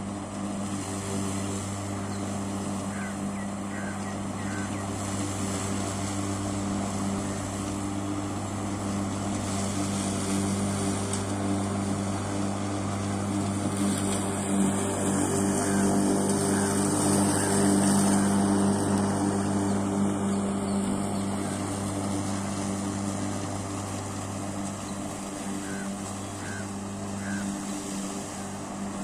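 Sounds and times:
electric lawn mower running: 0.0 - 29.0.

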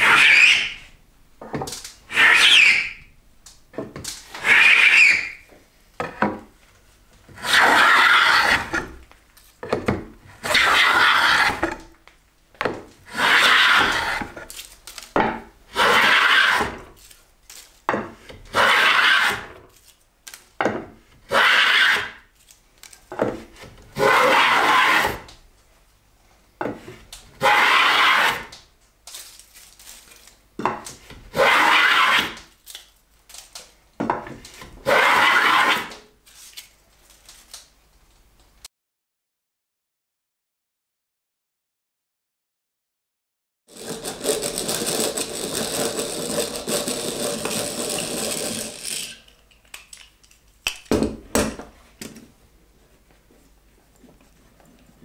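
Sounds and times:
hand plane rasping on wood: 7.3 - 8.9, 10.4 - 11.8, 13.1 - 14.4, 43.7 - 49.1.

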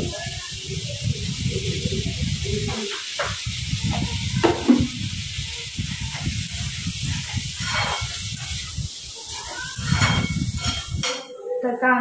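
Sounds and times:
onions sizzling in oil: 0.0 - 11.3
metal spatula scraping pan: 6.1 - 11.3.

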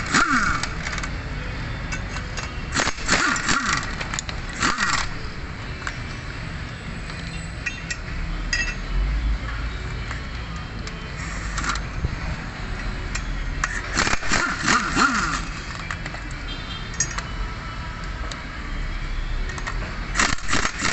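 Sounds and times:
metal clinks of socket and bolts: 1.9 - 2.9, 7.1 - 8.9, 16.9 - 17.4
impact wrench hammering: 1.9 - 5.3.

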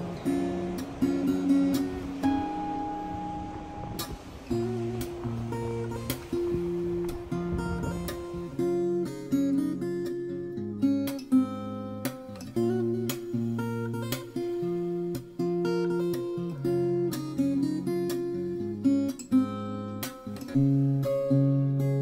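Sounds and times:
acoustic guitar plucked chords: 0.0 - 22.0.

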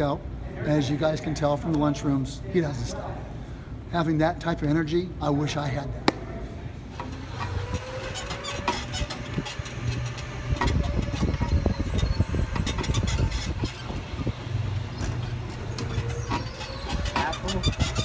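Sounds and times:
cart rattling and clicking: 7.0 - 18.0.

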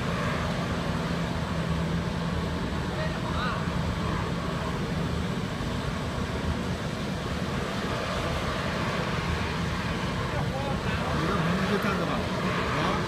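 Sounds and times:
burner flame and blower rushing: 0.0 - 13.0.

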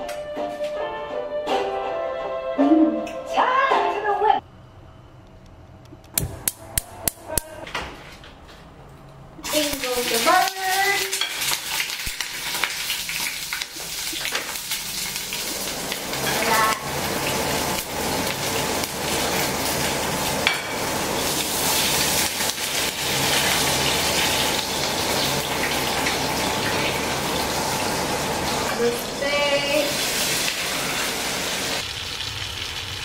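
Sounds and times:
food sizzling in hot oil: 9.4 - 33.0.

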